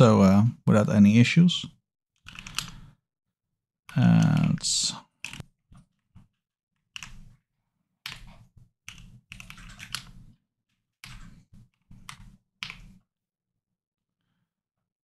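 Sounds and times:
typing on computer keyboard: 0:02.2 - 0:02.9, 0:05.2 - 0:06.0, 0:06.9 - 0:07.4, 0:08.0 - 0:10.4, 0:11.0 - 0:13.0.

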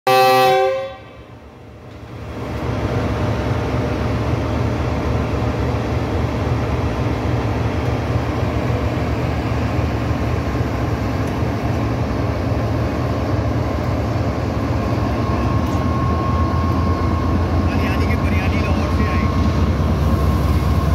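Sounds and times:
locomotive horn blast: 0:00.1 - 0:01.3
locomotive engine low drone: 0:01.0 - 0:20.9.

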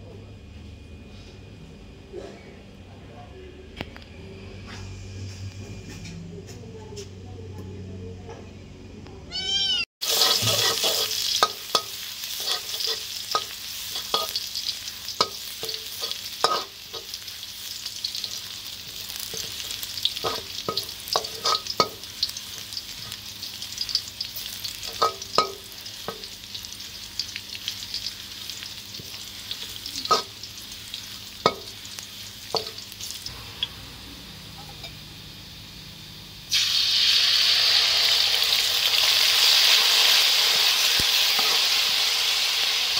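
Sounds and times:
metal spatula scraping a wok: 0:10.0 - 0:14.5, 0:15.2 - 0:17.2, 0:19.3 - 0:22.0, 0:29.0 - 0:30.4, 0:40.8 - 0:41.8
garlic sizzling in oil: 0:10.0 - 0:42.9
liquid poured into hot oil: 0:36.5 - 0:40.3.

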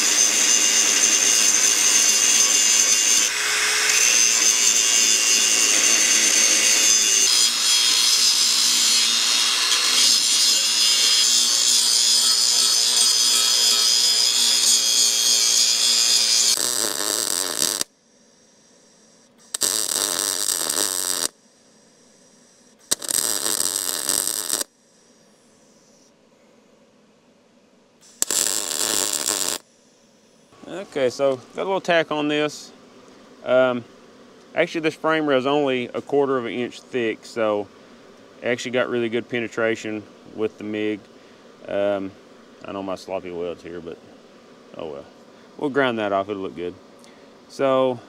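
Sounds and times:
welding arc on steel: 0:00.0 - 0:18.0, 0:19.4 - 0:21.9, 0:22.8 - 0:26.0, 0:28.0 - 0:29.9.

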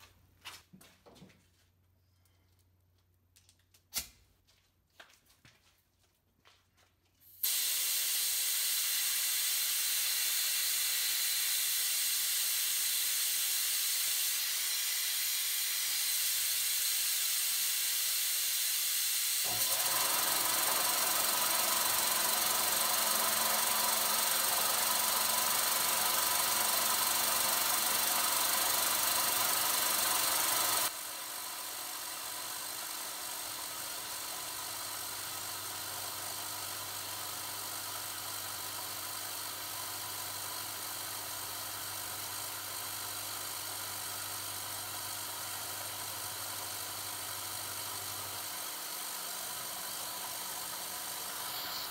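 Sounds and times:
compressed air hissing from nozzle: 0:07.4 - 0:19.6, 0:33.1 - 0:51.9
milling machine spindle whirring: 0:19.2 - 0:51.9.

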